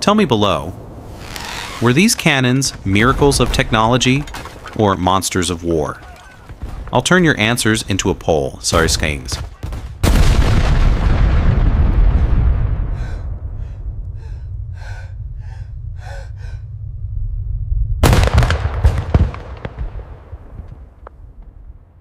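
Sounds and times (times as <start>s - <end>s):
heavy explosion rumbling: 2.7s - 4.7s, 8.7s - 21.9s
person gasping: 12.8s - 16.8s.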